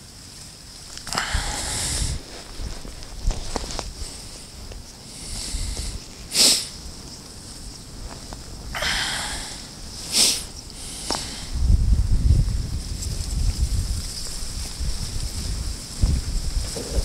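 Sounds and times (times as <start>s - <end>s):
wind rumble on microphone: 0.8s - 17.0s
person sniffing sharply: 1.0s - 2.2s, 5.1s - 6.8s, 8.8s - 11.6s
soft breath: 1.0s - 6.8s, 8.7s - 11.7s.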